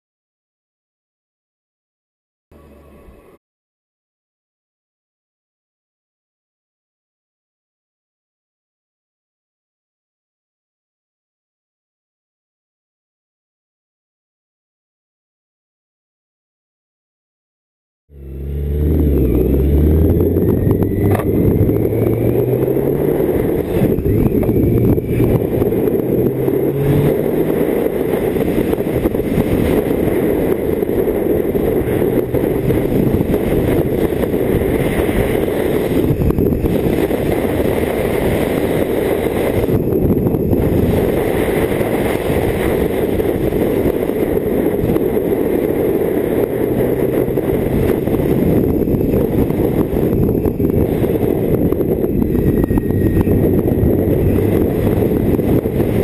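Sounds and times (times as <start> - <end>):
motorcycle engine running: 18.1 - 56.0
steady low rumble: 18.1 - 56.0
wind rushing over microphone: 18.1 - 56.0.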